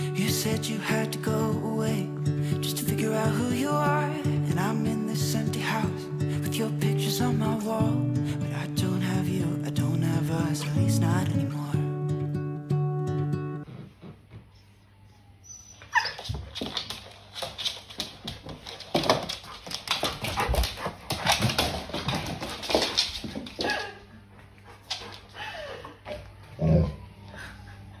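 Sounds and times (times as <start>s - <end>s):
dog whining: 14.5s - 16.5s, 25.4s - 28.0s
dog claws clicking on floor: 16.2s - 23.9s.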